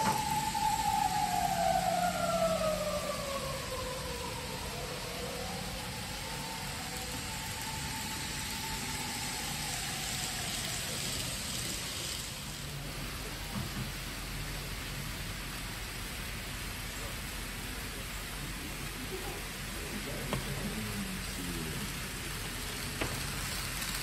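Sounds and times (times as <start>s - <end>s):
high motor whine: 0.0s - 14.9s
model train wheels hissing: 0.0s - 24.0s.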